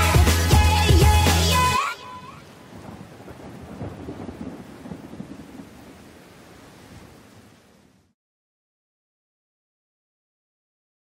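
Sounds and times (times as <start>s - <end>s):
steady rain: 0.0s - 8.2s
thunder rumbling: 2.2s - 7.8s.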